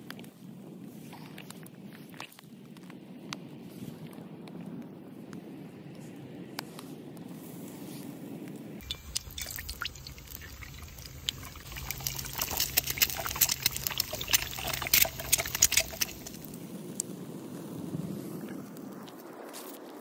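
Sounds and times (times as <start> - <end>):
egg sizzling and popping in pan: 8.8 - 16.6.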